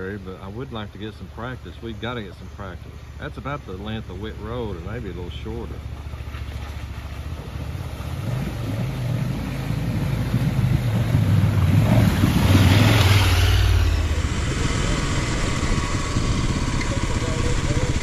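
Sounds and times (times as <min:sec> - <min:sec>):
motorcycle engine accelerating: 0:04.1 - 0:18.0
rushing wind noise: 0:07.6 - 0:18.0.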